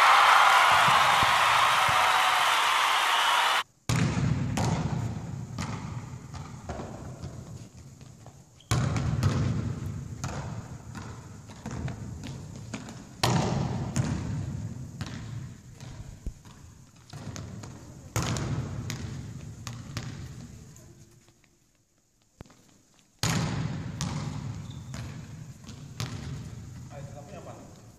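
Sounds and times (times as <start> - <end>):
volleyball hits echoing in hall: 0.0 - 7.4, 13.2 - 15.5, 23.2 - 26.7.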